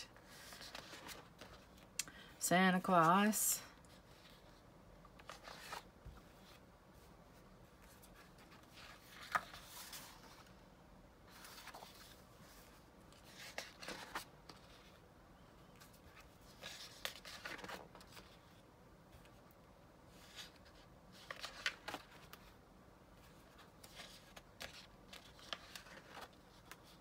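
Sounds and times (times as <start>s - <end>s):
paper sheets rustling: 0.2s - 1.8s, 7.8s - 10.5s, 15.8s - 18.5s, 20.2s - 22.5s, 23.3s - 27.0s.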